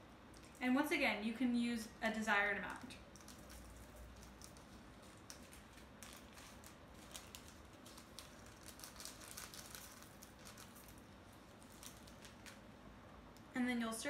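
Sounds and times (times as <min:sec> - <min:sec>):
plastic bag crinkling: 0:00.3 - 0:00.8, 0:02.6 - 0:12.8.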